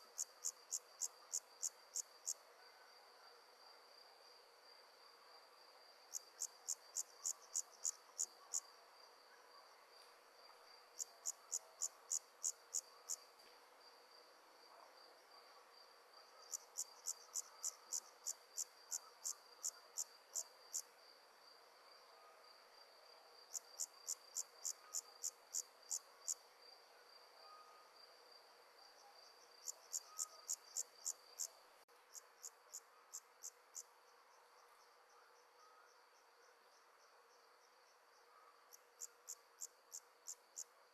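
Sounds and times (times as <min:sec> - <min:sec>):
insect chirping: 0:00.0 - 0:02.5, 0:06.0 - 0:08.8, 0:10.9 - 0:13.3, 0:16.3 - 0:21.6, 0:22.8 - 0:26.8, 0:29.0 - 0:40.8.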